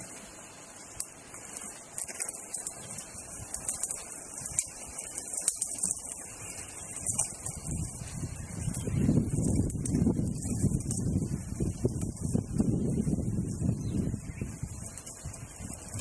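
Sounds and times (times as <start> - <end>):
leaves rustling: 0.0 - 16.0
steady high hiss: 0.0 - 16.0
twigs snapping: 0.9 - 8.0.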